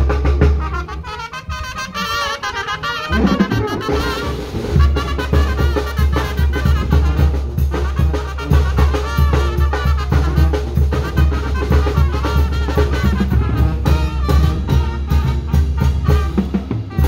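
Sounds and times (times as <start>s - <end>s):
drum beat: 0.0s - 1.0s, 3.1s - 17.0s
brass band music: 0.0s - 17.0s
deep bass line: 4.8s - 17.0s.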